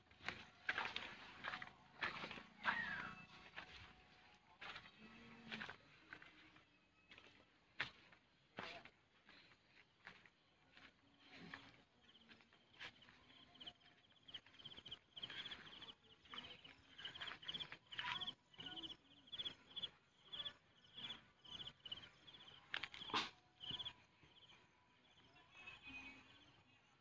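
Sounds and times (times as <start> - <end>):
cricket chirping: 18.7 - 24.5.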